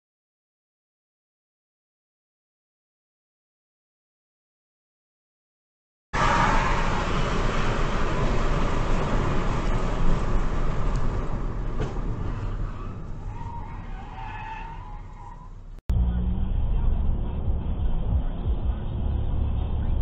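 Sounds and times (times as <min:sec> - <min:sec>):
car road and engine rumble: 0:06.2 - 0:20.0.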